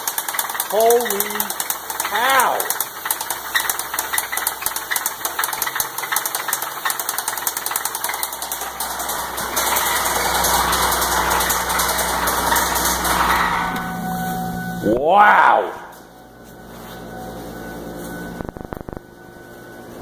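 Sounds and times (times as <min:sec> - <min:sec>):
car engine knocking: 0:00.0 - 0:13.7.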